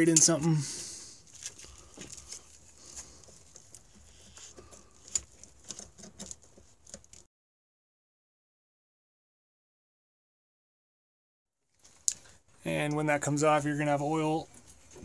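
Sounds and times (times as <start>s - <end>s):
pliers clicking and scraping: 3.6s - 7.3s.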